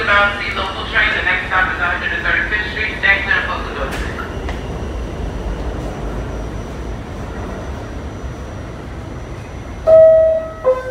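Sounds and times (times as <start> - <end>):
subway car rumbling on track: 0.0 - 10.9.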